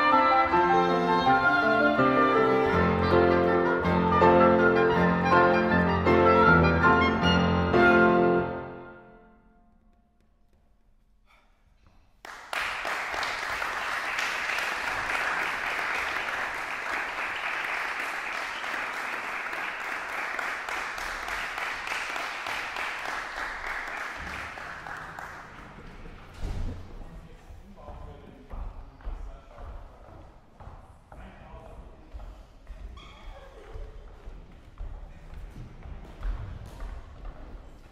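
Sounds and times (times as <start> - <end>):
chord reverberating in hall: 0.0 - 10.5
audience applause: 12.2 - 26.3.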